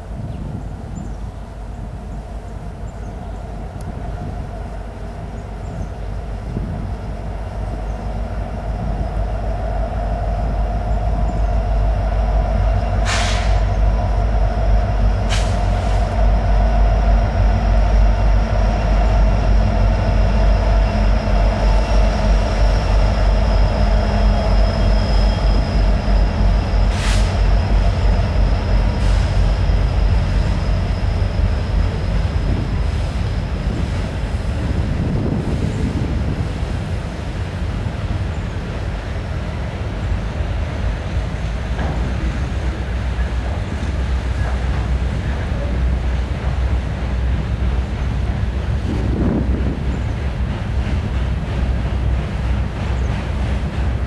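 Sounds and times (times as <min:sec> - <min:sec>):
freight train rumbling past: 0:00.0 - 0:54.0
high steady whine: 0:06.6 - 0:38.2.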